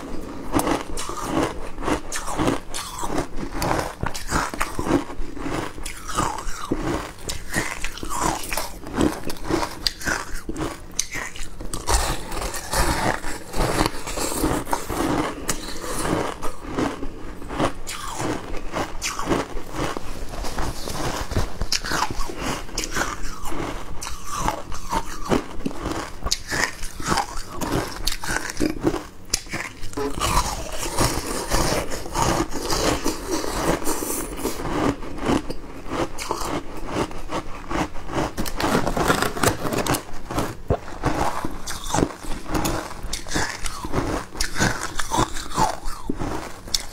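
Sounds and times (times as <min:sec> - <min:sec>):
person chewing shaved ice: 0:00.0 - 0:46.9.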